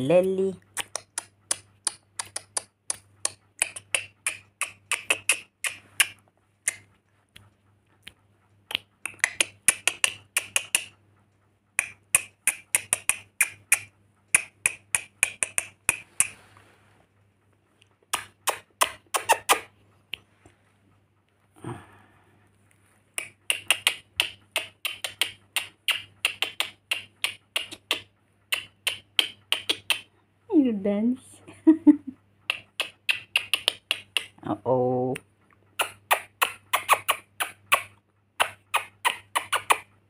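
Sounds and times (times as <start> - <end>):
lorikeet clicking chirps: 0.7 - 6.8, 8.7 - 10.9, 11.8 - 16.3, 23.2 - 30.1, 32.5 - 34.4, 35.8 - 39.9.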